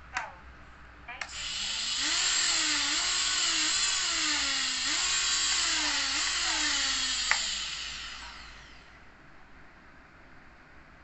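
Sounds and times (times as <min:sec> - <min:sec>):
drone motors whining: 0:01.3 - 0:09.0
sharp click: 0:07.3 - 0:07.5.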